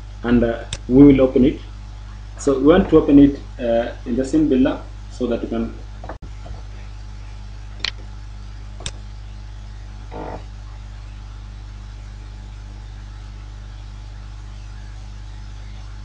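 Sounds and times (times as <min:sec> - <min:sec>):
low electrical hum: 0:00.0 - 0:16.0
sharp clicks: 0:08.8 - 0:09.0.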